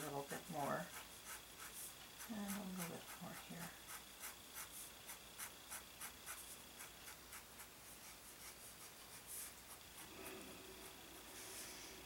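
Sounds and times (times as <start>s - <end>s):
pen nib scratching paper: 0.3s - 11.6s.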